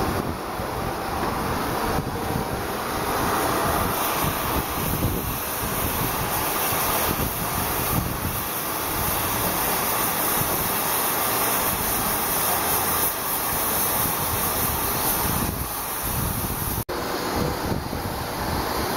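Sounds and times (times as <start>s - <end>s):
wind buffeting microphone: 0.0s - 9.6s, 13.4s - 18.9s
steady rushing hiss: 0.0s - 18.9s.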